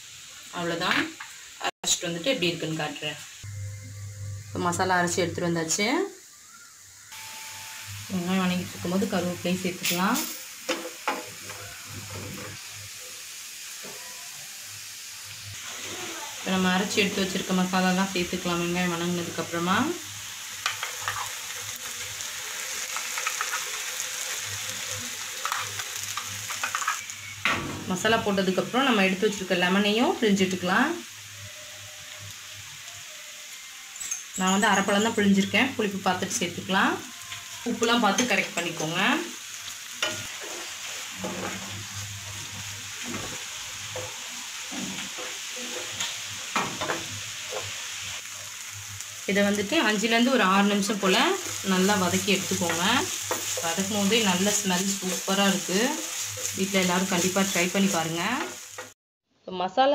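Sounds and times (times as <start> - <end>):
onions sizzling in oil: 0.0 - 59.0
spatula scraping pan: 20.6 - 21.4, 40.0 - 47.8, 51.4 - 58.9.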